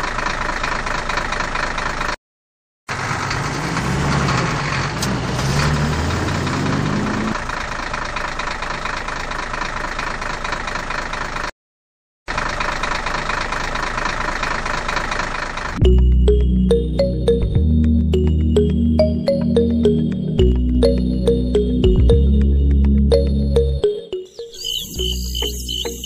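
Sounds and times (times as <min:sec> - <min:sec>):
engine running rattly: 0:00.0 - 0:02.2, 0:02.9 - 0:11.5, 0:12.3 - 0:15.8
music: 0:15.8 - 0:26.0.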